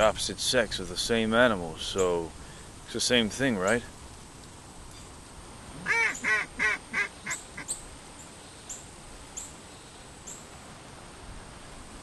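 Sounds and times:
duck quacking: 5.8s - 7.7s.

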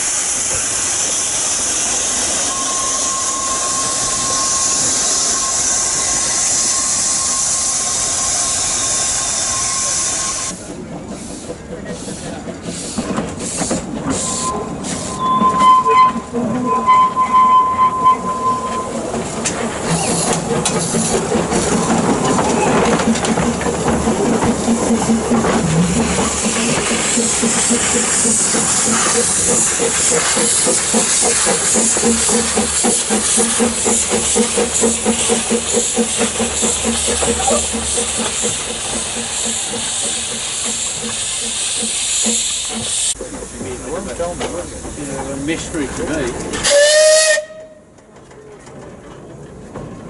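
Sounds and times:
steam hissing: 0.0s - 15.8s, 17.0s - 45.9s
steam locomotive whistle: 1.9s - 10.5s, 14.1s - 19.0s, 46.6s - 47.9s
rhythmic exhaust and wheels: 18.9s - 46.0s.

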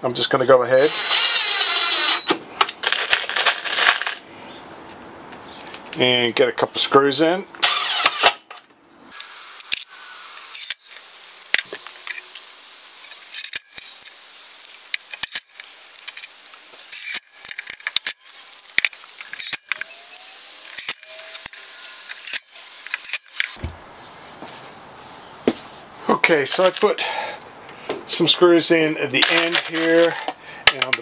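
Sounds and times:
cordless drill driving screws: 0.8s - 2.4s, 7.6s - 8.4s, 19.2s - 23.6s.

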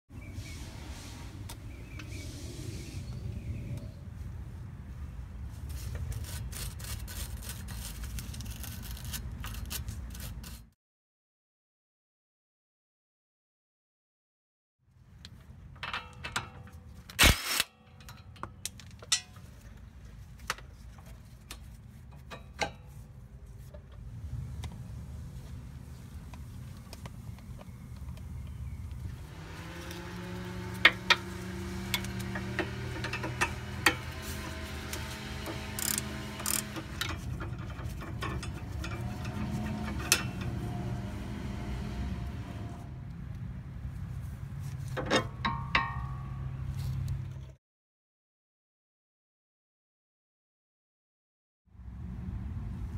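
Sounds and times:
impact wrench spinning: 31.9s - 40.4s
ratchet clicking: 34.9s - 40.6s.

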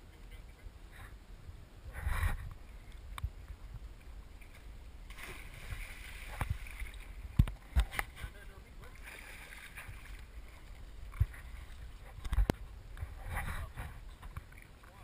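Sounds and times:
water sloshing: 2.4s - 15.0s
splash into river: 5.1s - 7.0s, 8.9s - 10.2s.

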